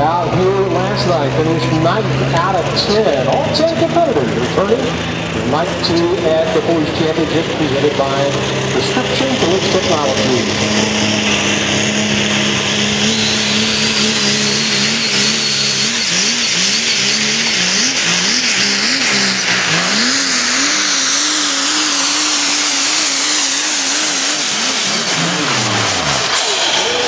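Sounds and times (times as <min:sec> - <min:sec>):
diesel truck engine at full throttle: 0:00.0 - 0:27.0
high whistle: 0:13.2 - 0:17.6, 0:26.3 - 0:27.0.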